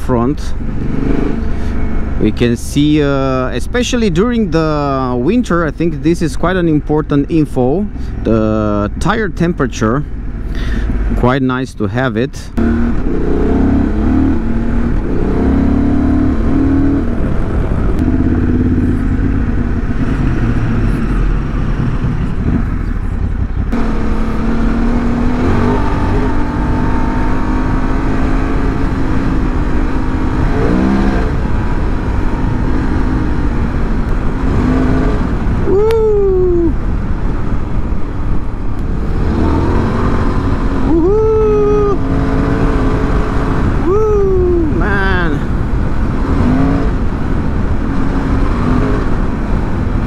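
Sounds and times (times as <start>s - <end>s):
wind and road noise: 0.0s - 50.0s
motorcycle engine running: 12.5s - 43.9s.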